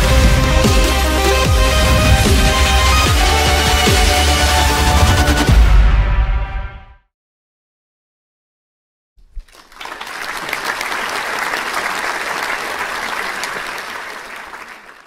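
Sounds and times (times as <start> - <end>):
crowd applauding: 9.3 - 15.0.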